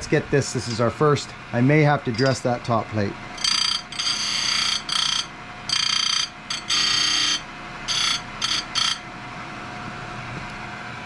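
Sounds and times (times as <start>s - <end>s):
grinding stone rasping on metal: 3.4s - 9.0s
grinder motor humming: 3.4s - 9.1s.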